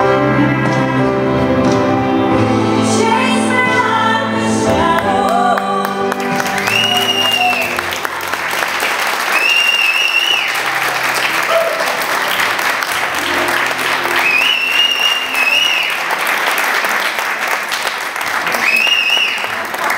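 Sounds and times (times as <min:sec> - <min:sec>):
audience applauding: 0:05.0 - 0:19.9
long high whistles: 0:06.6 - 0:07.8, 0:09.3 - 0:10.7, 0:14.2 - 0:16.1, 0:18.5 - 0:19.5.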